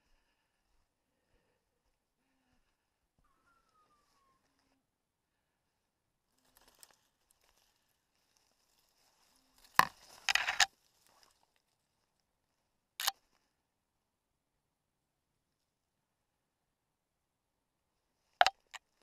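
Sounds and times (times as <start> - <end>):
brush and leaves rustling: 6.3 - 12.2.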